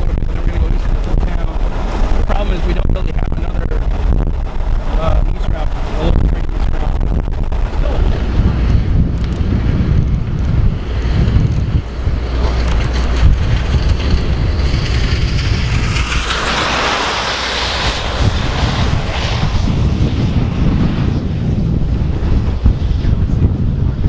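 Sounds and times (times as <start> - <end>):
wind buffeting microphone: 0.0 - 24.0
rushing hiss: 15.6 - 19.2.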